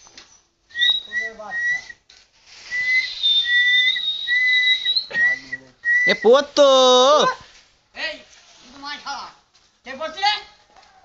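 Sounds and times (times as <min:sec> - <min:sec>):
whistling short notes: 0:00.2 - 0:02.0, 0:02.6 - 0:06.4
hiss: 0:02.4 - 0:04.0.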